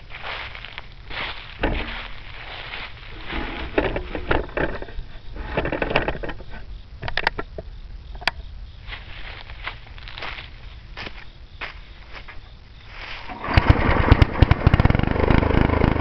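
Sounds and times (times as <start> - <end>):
footsteps in dry leaves: 0.0 - 4.2, 8.8 - 13.4.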